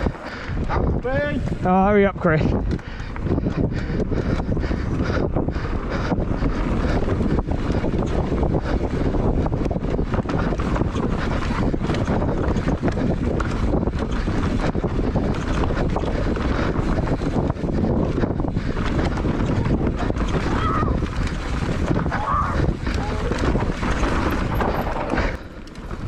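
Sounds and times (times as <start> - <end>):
bike tyres rumbling on dirt: 0.0 - 26.0
wind buffeting microphone: 0.0 - 26.0
bike knocks and rattles: 6.6 - 26.0.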